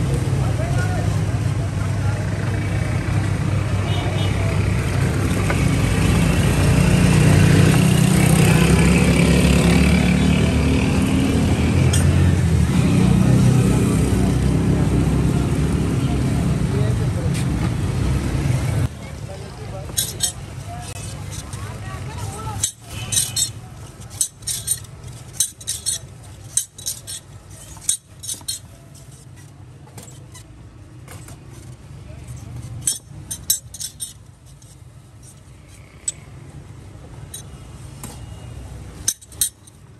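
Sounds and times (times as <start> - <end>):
metal scoop clattering sugarcane: 19.8 - 36.0.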